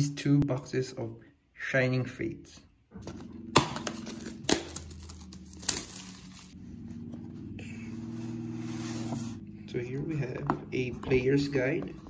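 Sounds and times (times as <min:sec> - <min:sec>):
plastic wrap peeling and crinkling: 0:04.0 - 0:06.6.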